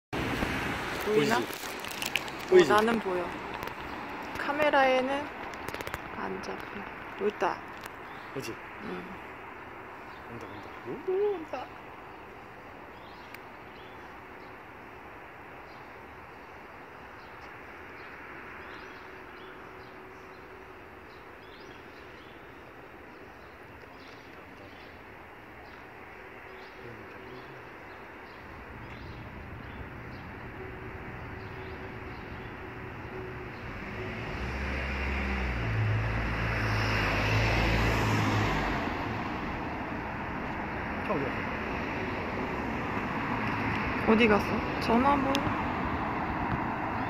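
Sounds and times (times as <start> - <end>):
street traffic: 0.1 - 47.0
small birds chirping: 0.9 - 33.8, 39.8 - 47.0
vehicle passing by: 28.8 - 47.0.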